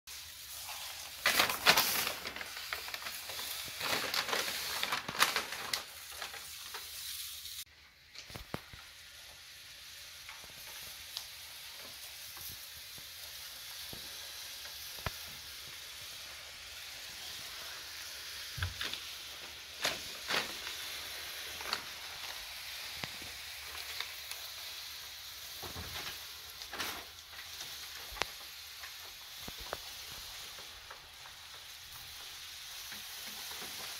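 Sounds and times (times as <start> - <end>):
paper crinkling and rustling: 0.5 - 7.2, 18.6 - 24.8, 25.5 - 33.9.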